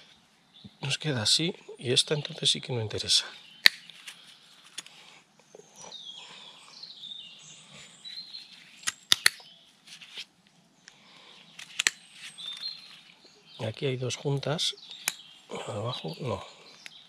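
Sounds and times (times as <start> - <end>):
small birds chirping: 0.0 - 17.0
scissors snipping roots: 8.8 - 9.4.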